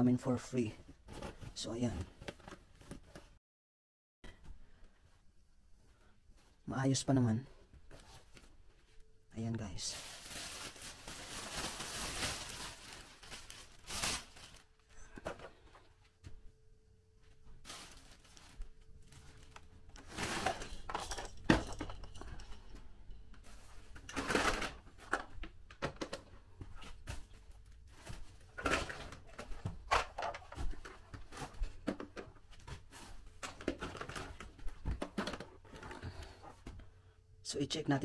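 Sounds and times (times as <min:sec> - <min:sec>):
plastic bags rustling: 0:09.7 - 0:15.4, 0:17.4 - 0:25.8, 0:26.8 - 0:36.7.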